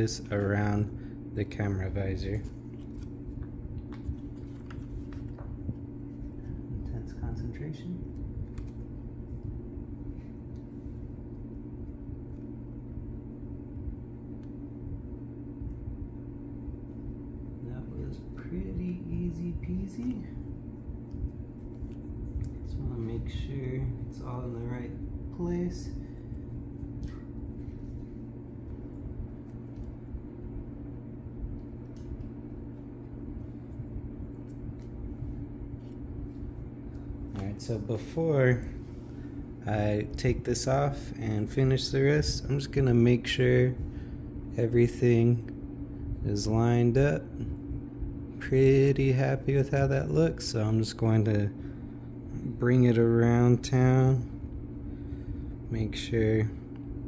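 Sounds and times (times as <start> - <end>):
low background hum: 0.0 - 57.0
light ticks of vinyl skin handled: 2.3 - 6.5, 8.4 - 9.5.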